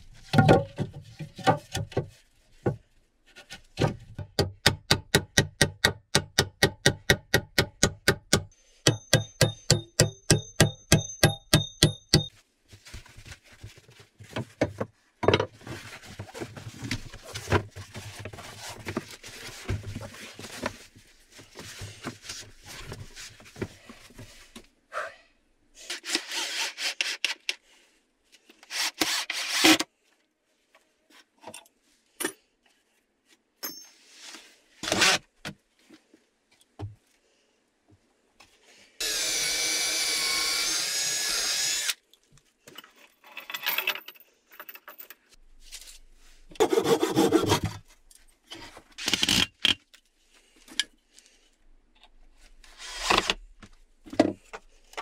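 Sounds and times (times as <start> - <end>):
cordless drill boring into wood: 39.0 - 42.0.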